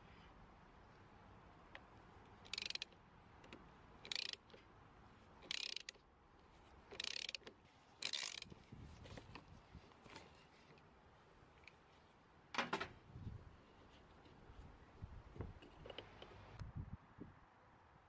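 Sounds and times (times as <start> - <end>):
socket ratchet clicking: 2.4 - 4.5, 5.4 - 6.0, 6.9 - 8.5.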